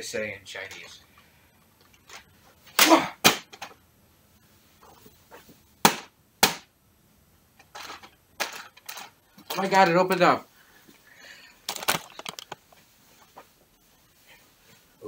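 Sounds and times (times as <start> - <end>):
sharp smacks on bag: 2.8 - 3.5, 5.8 - 6.7.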